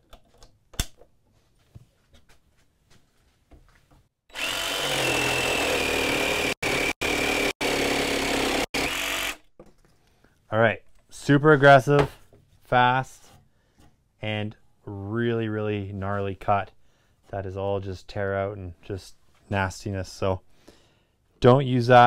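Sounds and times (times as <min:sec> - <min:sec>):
jigsaw cutting wood: 0:04.3 - 0:09.4.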